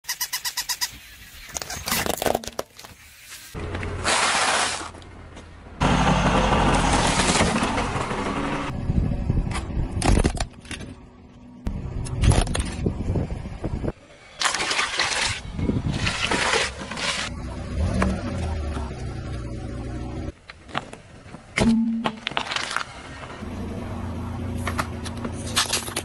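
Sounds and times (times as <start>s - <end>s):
low engine noise: 5.0s - 14.4s, 17.0s - 26.0s.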